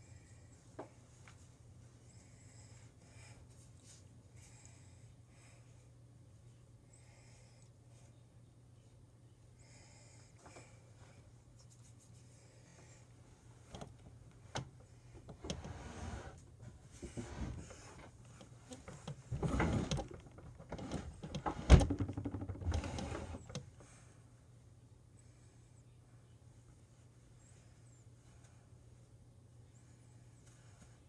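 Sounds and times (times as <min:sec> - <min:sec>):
faint steady hum: 0:00.0 - 0:31.0
rustling and scraping of objects: 0:03.4 - 0:04.6, 0:10.4 - 0:24.0.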